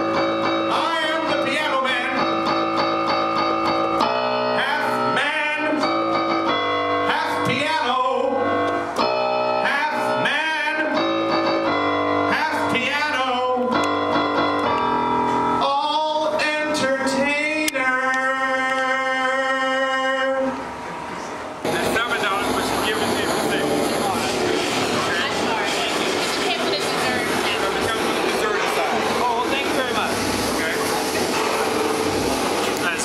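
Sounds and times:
electronic keyboard chords: 0.0s - 19.5s, 21.6s - 33.0s
man singing into a microphone: 0.6s - 2.5s, 4.4s - 6.2s, 7.0s - 8.7s, 9.6s - 11.4s, 12.3s - 13.9s, 15.6s - 20.6s.

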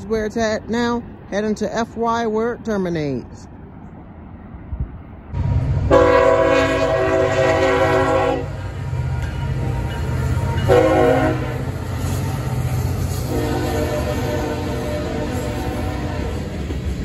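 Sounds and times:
locomotive rumbling past: 0.0s - 17.0s
train air horn blasts: 5.9s - 12.2s, 13.1s - 16.5s.

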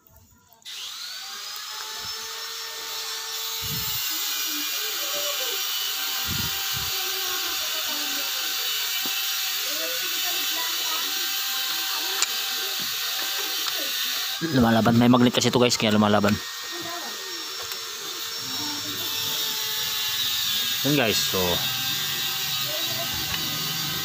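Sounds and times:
steady whirring rushing noise: 3.6s - 4.0s, 6.2s - 7.1s.

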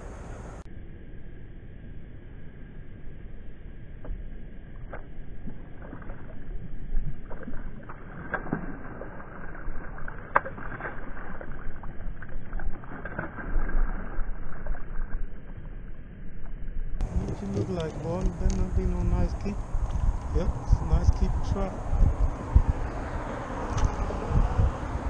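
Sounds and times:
water splashes: 4.1s - 16.0s, 17.0s - 25.0s
water lapping against boat hull: 4.8s - 15.7s, 17.0s - 25.0s.

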